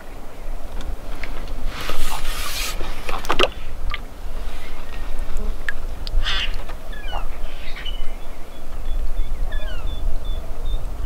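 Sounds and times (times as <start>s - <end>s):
wind buffeting microphone: 0.0s - 11.0s
scratchy rubbing noise: 1.6s - 3.3s
short bird calls: 6.2s - 8.6s.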